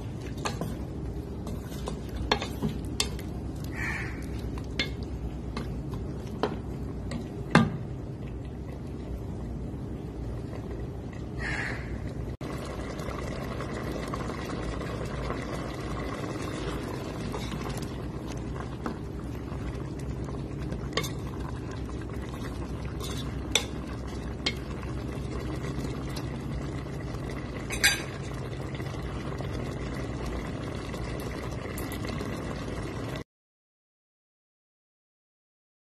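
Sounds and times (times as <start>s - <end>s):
curry simmering in a pot: 0.0s - 33.2s
utensil clinking on pot: 20.8s - 21.4s, 27.7s - 28.2s.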